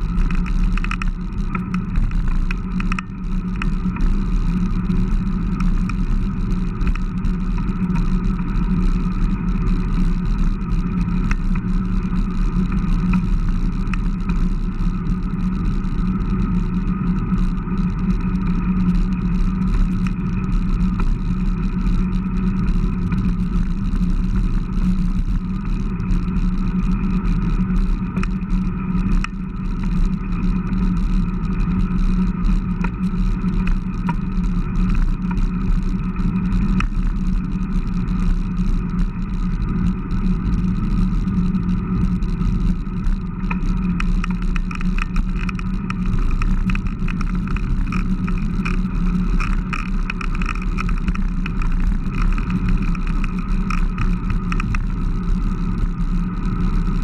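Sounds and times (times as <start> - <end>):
road rumble: 0.0 - 57.0
wind noise: 0.0 - 57.0
light clicks and rattles: 0.1 - 4.1, 43.4 - 54.9.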